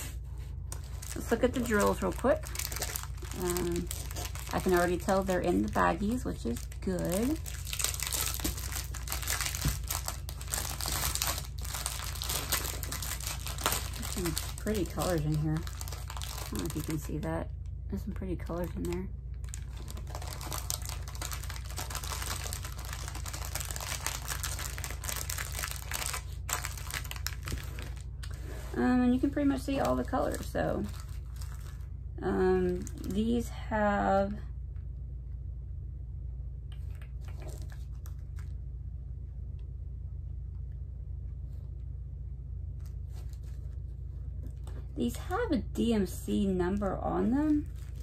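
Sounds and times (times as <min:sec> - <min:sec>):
steady low hum: 0:00.0 - 0:48.0
plastic bags crinkling: 0:00.6 - 0:17.4, 0:18.4 - 0:31.9, 0:32.6 - 0:33.4, 0:36.9 - 0:38.5, 0:46.8 - 0:48.0.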